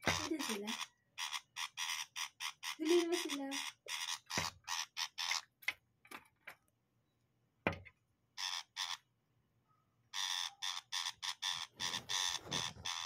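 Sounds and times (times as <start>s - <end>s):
bird harsh rasping calls: 0.0s - 5.5s, 8.4s - 9.1s, 10.1s - 13.0s.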